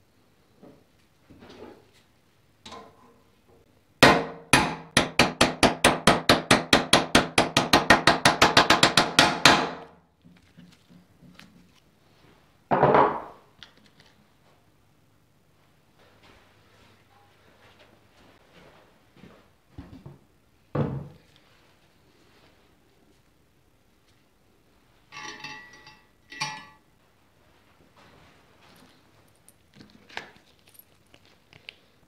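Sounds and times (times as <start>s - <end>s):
metal clatter: 25.1s - 26.8s.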